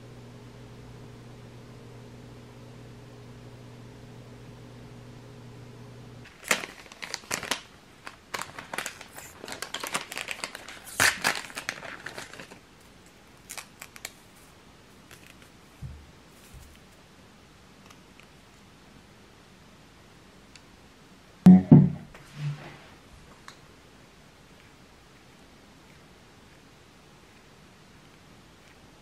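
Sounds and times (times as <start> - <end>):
steady low hum: 0.0 - 6.2, 21.5 - 22.8
paper wrapper tearing and crinkling: 6.2 - 12.6, 13.4 - 15.5
soft thump: 21.5 - 22.1.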